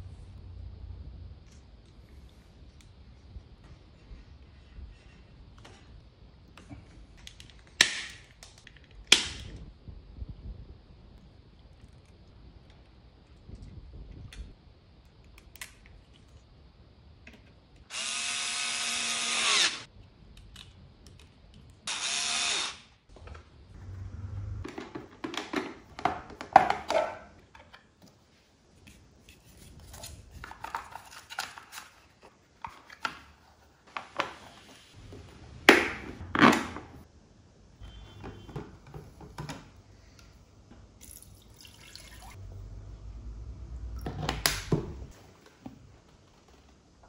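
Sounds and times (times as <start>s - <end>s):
power drill whining: 17.9s - 19.8s, 21.9s - 22.9s
plastic parts clicking and knocking: 24.6s - 27.9s.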